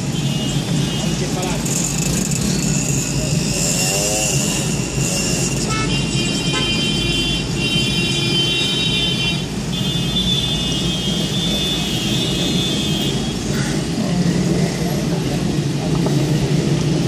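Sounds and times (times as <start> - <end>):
low engine rumble of traffic: 0.0 - 17.0.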